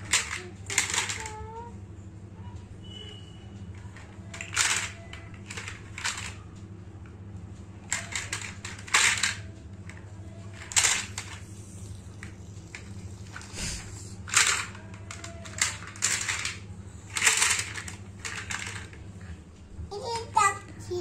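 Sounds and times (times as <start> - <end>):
low steady hum: 0.0 - 21.0
plastic blocks clattering: 14.3 - 18.9.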